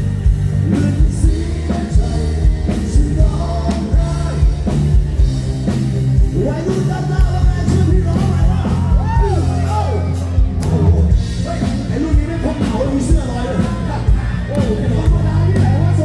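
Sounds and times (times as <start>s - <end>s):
drum kit: 0.0s - 16.0s
heavy bass line: 0.0s - 16.0s
keyboard: 0.0s - 16.0s
man singing: 0.5s - 4.9s, 6.2s - 10.1s, 10.8s - 16.0s.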